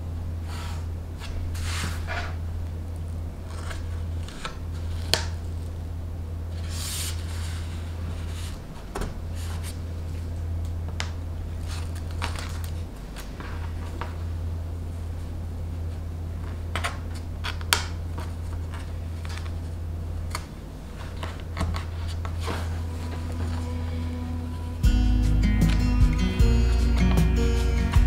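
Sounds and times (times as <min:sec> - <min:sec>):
fabric rustling: 0:20.8 - 0:24.7.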